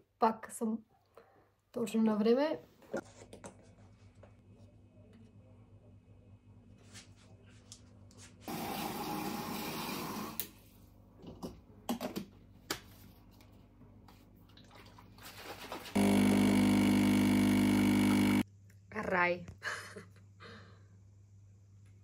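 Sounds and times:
tap water running into sink: 8.5s - 10.5s
espresso machine pump buzzing: 16.0s - 18.4s.

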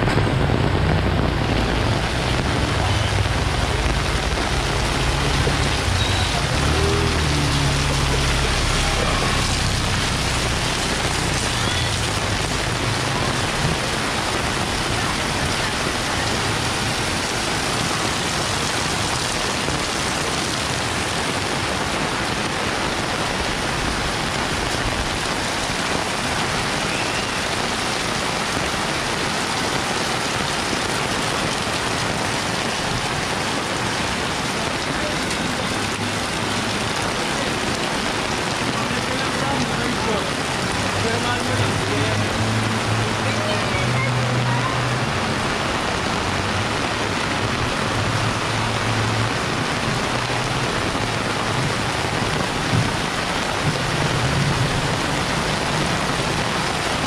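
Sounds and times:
low rumble: 0.0s - 17.8s
heavy rain pouring: 0.0s - 57.0s.

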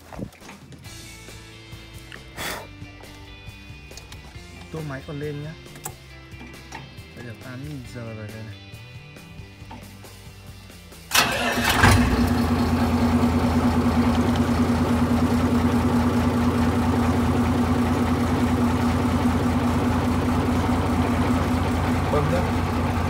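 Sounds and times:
diesel tractor engine idling: 11.1s - 23.0s
starter motor cranking: 11.1s - 23.0s.

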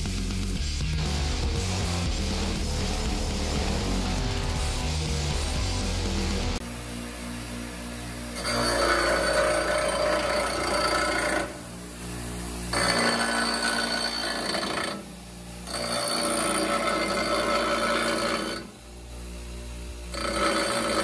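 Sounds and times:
grinder running alone: 1.0s - 21.0s
bench grinder grinding steel: 8.3s - 11.8s, 12.6s - 18.8s, 20.0s - 21.0s.

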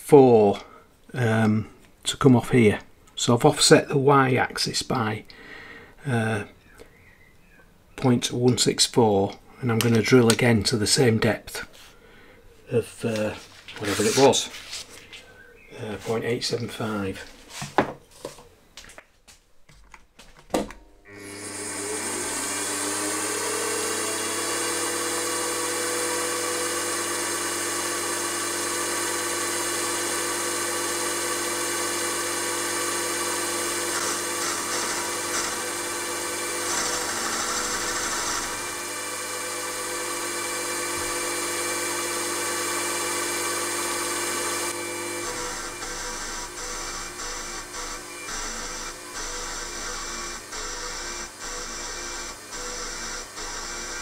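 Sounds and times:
milling machine spindle whine: 21.1s - 54.0s
high-pitched metal cutting noise: 30.6s - 39.4s, 41.1s - 54.0s.

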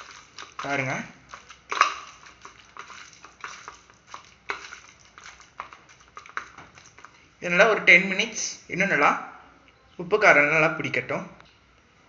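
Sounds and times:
stirring in a steel bowl: 0.0s - 8.6s.

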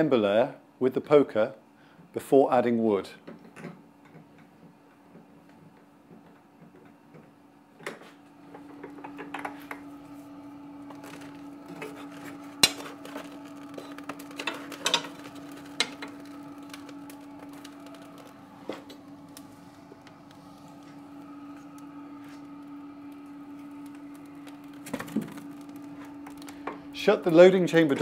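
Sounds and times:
chimney fan hum: 0.0s - 28.0s.

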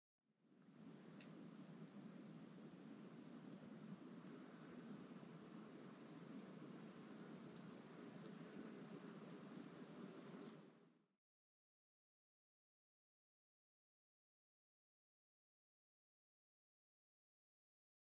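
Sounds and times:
low background noise: 0.4s - 11.2s
insects trilling: 0.6s - 10.9s.

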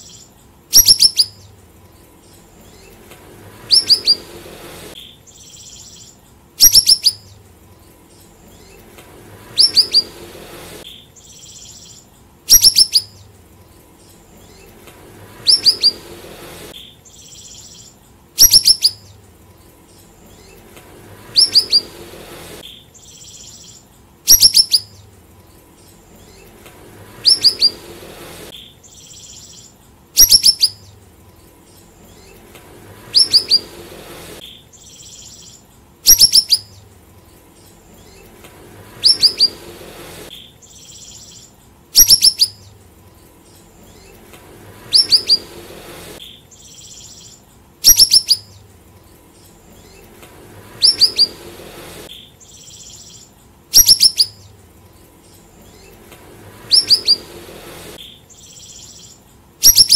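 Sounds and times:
songbird whistling phrases: 0.0s - 1.4s, 3.6s - 4.4s, 5.3s - 7.4s, 9.5s - 10.2s, 11.3s - 13.3s, 15.4s - 16.1s, 17.2s - 19.1s, 21.3s - 22.0s, 22.7s - 25.0s, 27.2s - 27.9s, 29.0s - 30.9s, 33.1s - 33.8s, 36.1s - 36.8s, 39.0s - 39.7s, 42.0s - 42.7s, 44.8s - 45.6s, 46.7s - 48.6s, 50.8s - 51.4s, 53.8s - 54.5s, 56.6s - 57.4s
soft high bird chatter: 0.0s - 59.9s.

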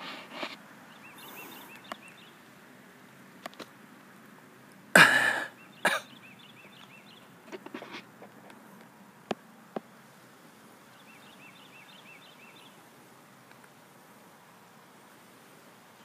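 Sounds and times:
soft high bird chirps: 0.9s - 2.4s.

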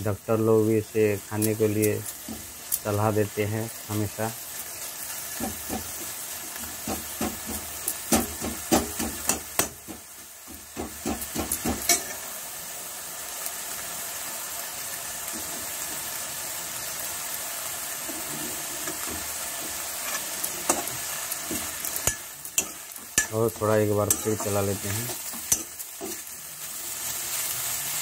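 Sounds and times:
food sizzling in a pan: 0.0s - 28.0s
ladle scraping a wok: 18.0s - 23.3s.

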